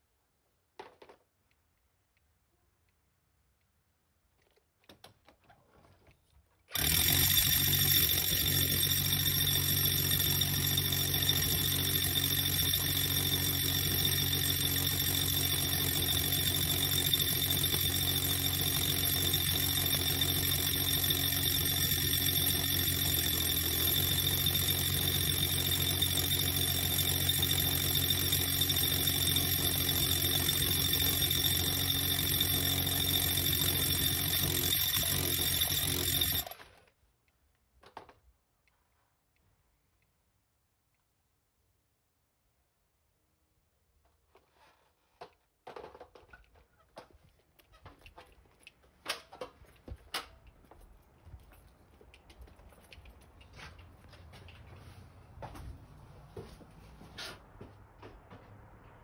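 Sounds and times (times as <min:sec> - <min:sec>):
power drill boring into brick: 0:06.7 - 0:36.7.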